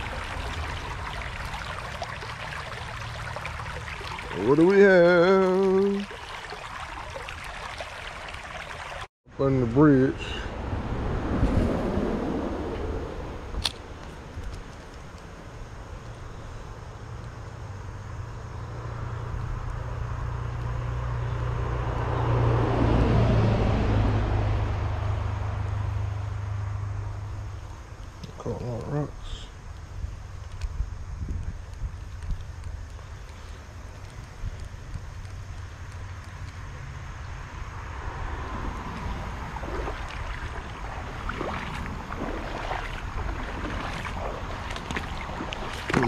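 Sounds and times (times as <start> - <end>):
small splashes: 0.0 - 9.1, 31.7 - 46.0
creek water trickling: 0.0 - 10.6, 11.4 - 23.0, 23.9 - 46.0
vehicle rumbling over bridge: 0.0 - 28.0, 33.6 - 46.0
steady low hum: 37.0 - 46.0.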